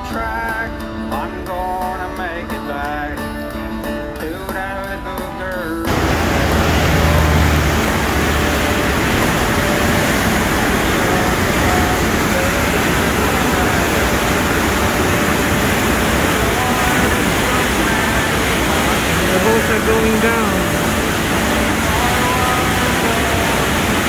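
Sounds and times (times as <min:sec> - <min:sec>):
faint voices: 0:05.9 - 0:24.0
water rushing and churning: 0:05.9 - 0:24.0.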